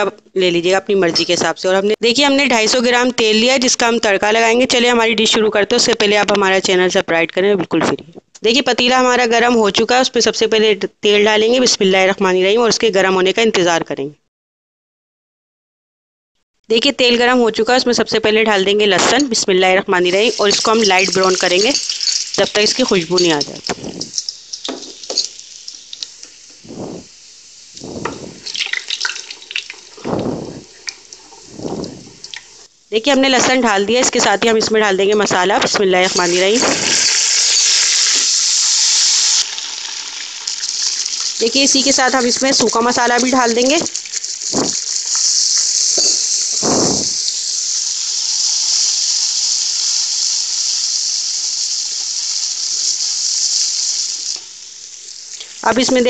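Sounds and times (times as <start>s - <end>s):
garlic sizzling in hot oil: 17.5s - 56.0s
spatula stirring: 20.4s - 27.1s, 27.8s - 32.7s.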